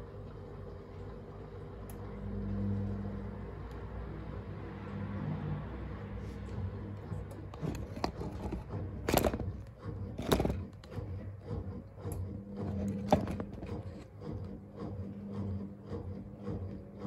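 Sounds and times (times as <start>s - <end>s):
washing machine drum tumbling: 6.6s - 17.0s.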